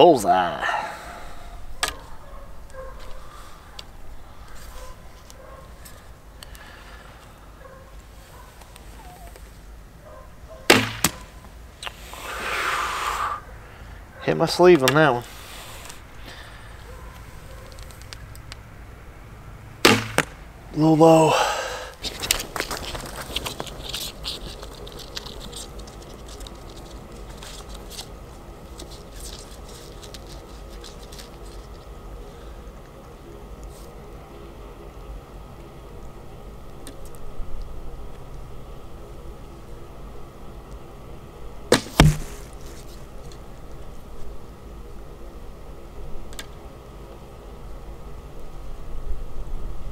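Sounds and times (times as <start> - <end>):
bowstring thwack: 10.7 - 11.2, 19.8 - 20.4, 41.7 - 42.4
sharp knock: 10.7 - 11.2, 19.8 - 20.3, 41.7 - 42.4
footsteps on grass and dry leaves: 22.0 - 31.9.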